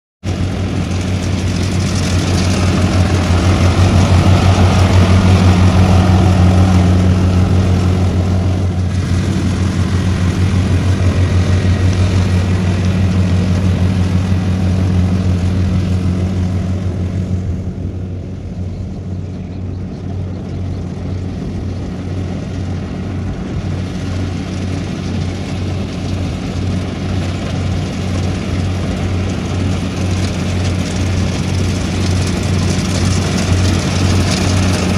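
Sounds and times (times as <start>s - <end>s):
combine harvester engine droning: 0.2s - 34.9s.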